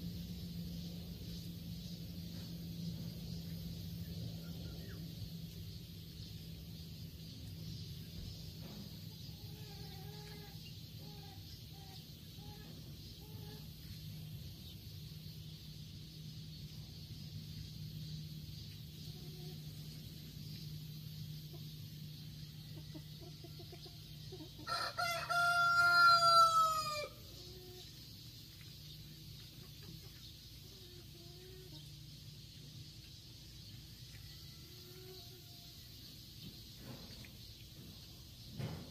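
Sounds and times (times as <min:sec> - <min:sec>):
rooster crowing: 0:24.6 - 0:27.3.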